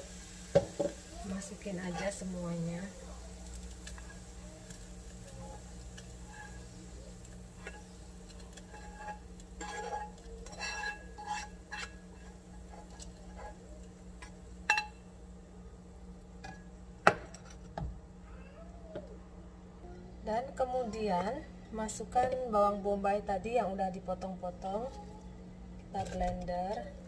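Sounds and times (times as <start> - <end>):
pan knocking on cooktop: 0.5 - 1.0, 16.4 - 18.0
spatula scraping frying pan: 1.5 - 2.4, 3.6 - 14.9.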